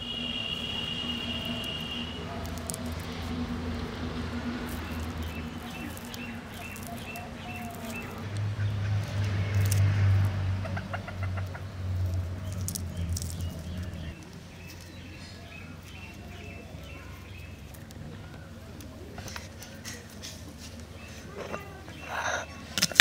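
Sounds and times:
small birds chirping: 0:00.0 - 0:09.9, 0:10.6 - 0:22.8
chickens clucking: 0:10.6 - 0:14.2, 0:18.0 - 0:22.8.

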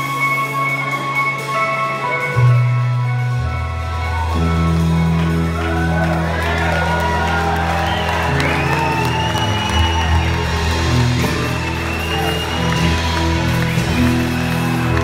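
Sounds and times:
live rock band playing: 0:00.0 - 0:15.0
crowd whooping and cheering: 0:03.2 - 0:15.0.

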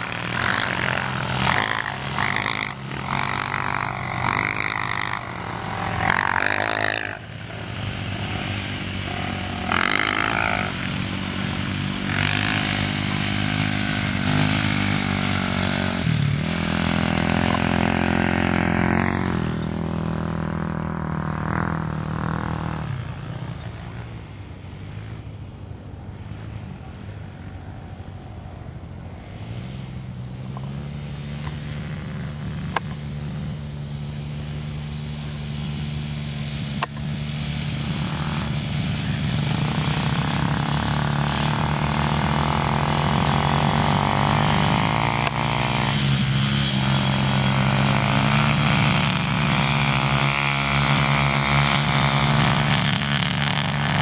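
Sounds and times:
quad engines revving: 0:00.0 - 0:54.0.

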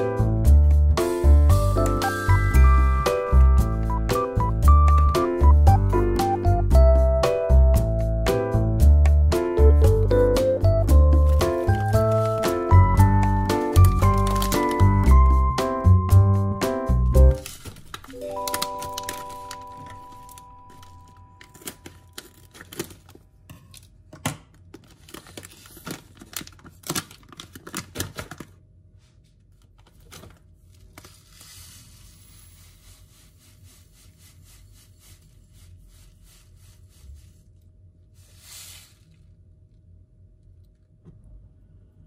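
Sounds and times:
plastic pouch crinkling: 0:11.2 - 0:15.3, 0:17.3 - 0:23.2, 0:24.6 - 0:28.5
scissors snipping plastic: 0:13.8 - 0:14.9
grains poured into glass bowl: 0:31.4 - 0:37.2.

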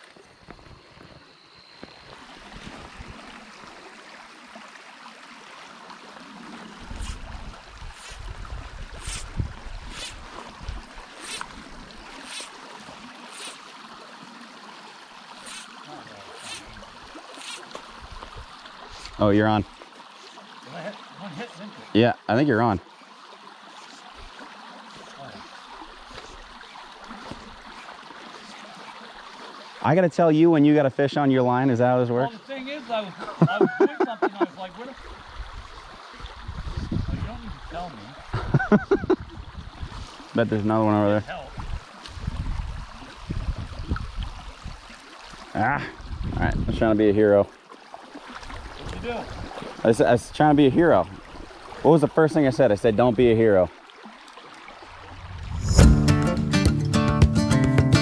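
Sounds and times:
stream running over gravel: 0:00.0 - 0:56.2
wind rumble on microphone: 0:06.8 - 0:11.9, 0:35.2 - 0:37.7, 0:38.3 - 0:40.2, 0:41.5 - 0:44.9, 0:46.0 - 0:47.0.

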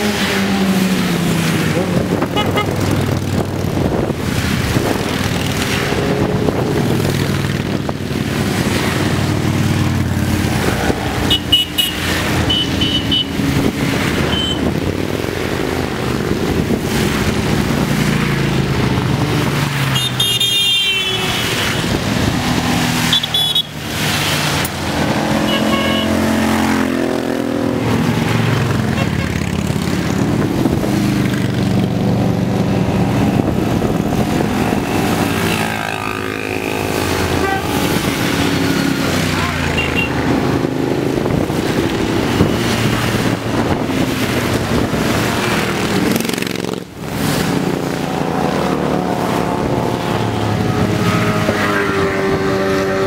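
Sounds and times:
motorcycles riding past: 0:00.0 - 0:53.0
short high horn toots: 0:25.4 - 0:26.2, 0:37.4 - 0:38.0.

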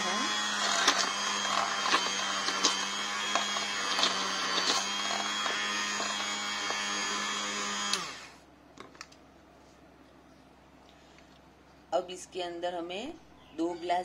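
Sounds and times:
immersion blender motor whine: 0:00.0 - 0:08.4.

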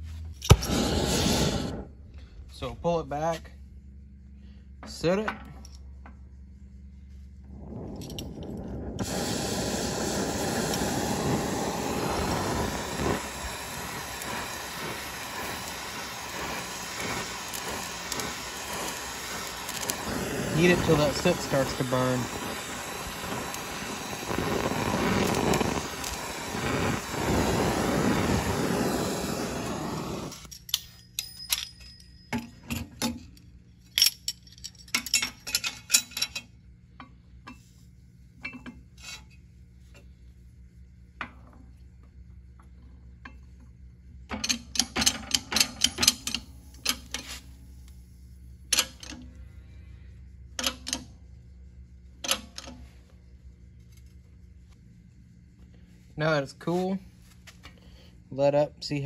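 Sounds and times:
gas torch hissing: 0:00.5 - 0:02.7, 0:07.2 - 0:30.5, 0:44.4 - 0:51.2.

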